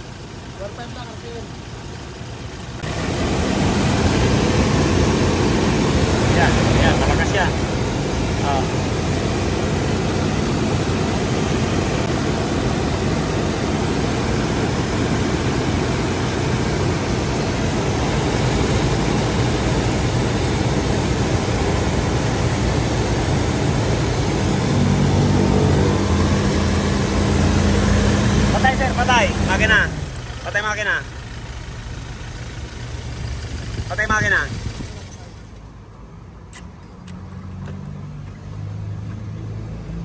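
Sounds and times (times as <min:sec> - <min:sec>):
radiator fan rushing: 0:00.0 - 0:35.5
car engine idling: 0:00.0 - 0:36.6.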